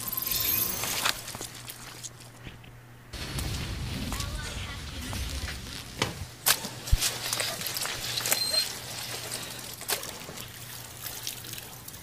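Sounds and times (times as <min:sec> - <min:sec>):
water splashing and trickling: 0:06.5 - 0:12.0.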